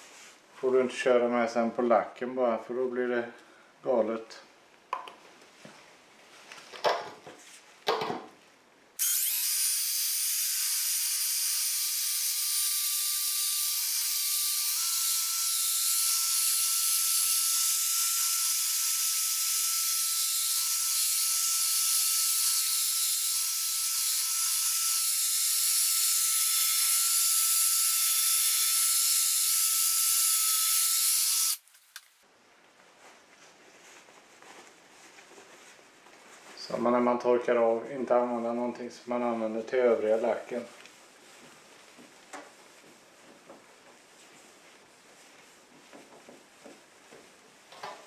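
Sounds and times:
drill whining: 9.0 - 31.6.

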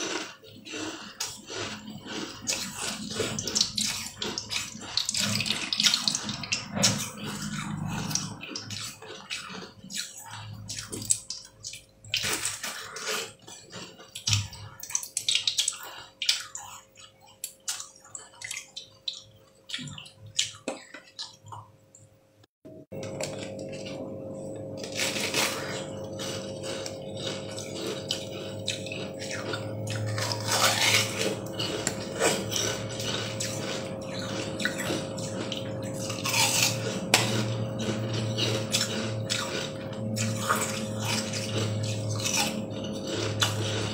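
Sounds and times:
ice crunching in mouth: 0.0 - 19.2, 23.0 - 43.9
steady hum: 22.7 - 43.9.

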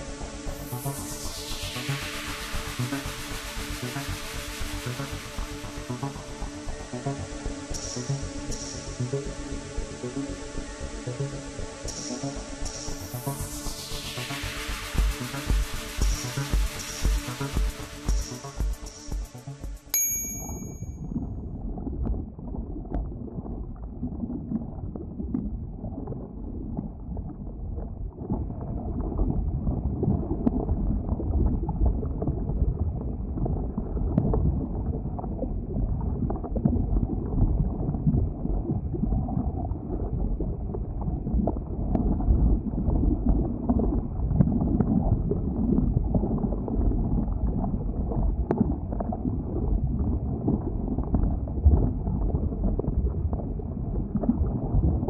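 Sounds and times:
lava flow low rumbling noise: 21.2 - 55.0.

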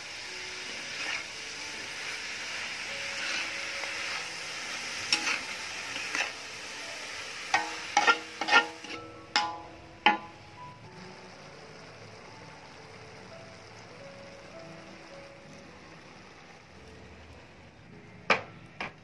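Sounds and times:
food sizzling: 0.0 - 19.0
metal spatula scraping a wok: 0.6 - 10.4.

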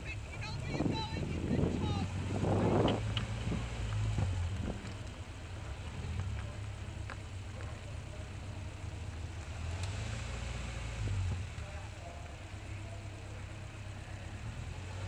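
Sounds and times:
race car engine idling: 0.0 - 15.0
wind on microphone: 0.7 - 4.9.

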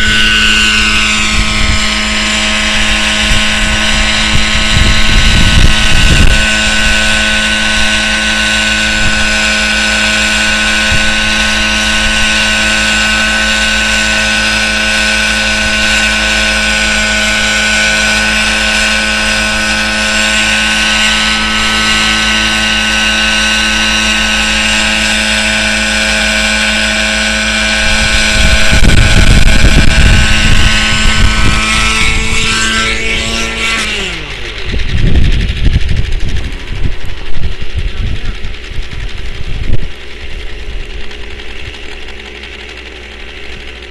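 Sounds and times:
loud rushing noise: 0.0 - 41.7
model helicopter engine whine: 0.0 - 43.9
rotor hum: 0.0 - 43.9.

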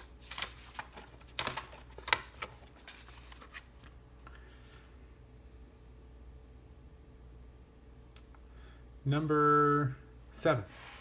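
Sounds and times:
paper rustling: 0.0 - 4.0.

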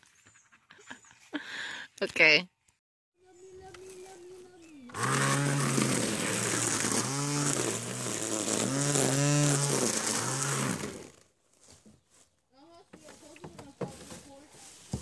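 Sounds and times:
small engine revving: 4.8 - 11.3.

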